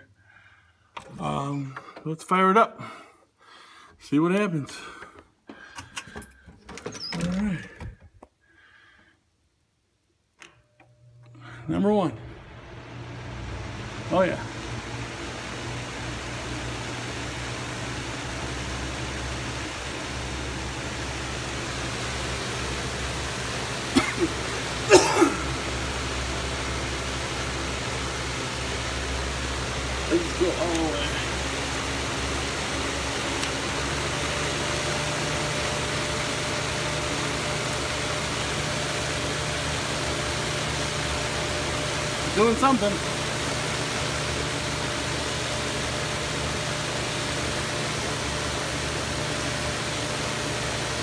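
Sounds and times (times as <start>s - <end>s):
electric fan running: 10.3s - 51.0s.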